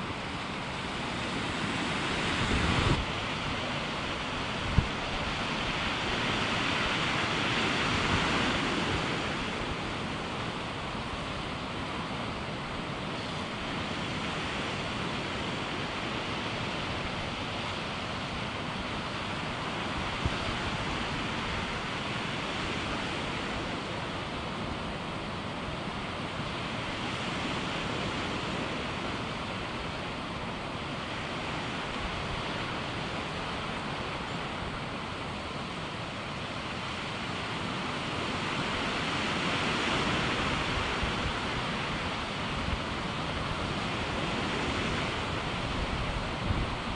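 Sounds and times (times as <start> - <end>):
sea surf washing: 0.0 - 46.9
wind on microphone: 0.8 - 10.3, 37.3 - 46.9.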